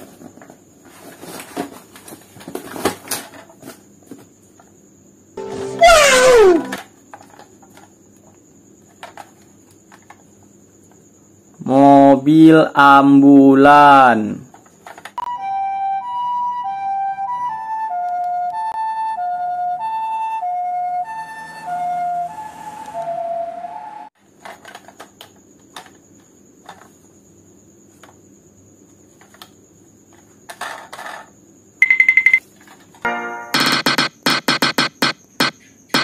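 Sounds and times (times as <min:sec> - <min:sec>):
two-tone ambulance siren: 0:15.2 - 0:24.2
loud high beep: 0:31.8 - 0:32.4, 0:33.1 - 0:36.0.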